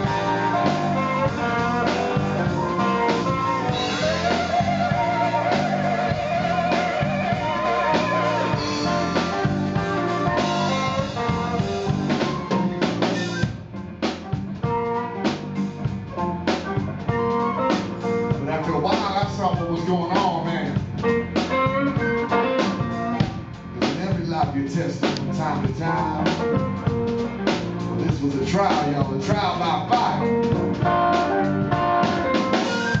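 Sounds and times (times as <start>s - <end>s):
flute: 0.0s - 13.6s, 17.0s - 20.3s, 31.1s - 33.0s
drum kit: 0.0s - 33.0s
electric bass: 0.0s - 33.0s
electric guitar: 0.0s - 33.0s.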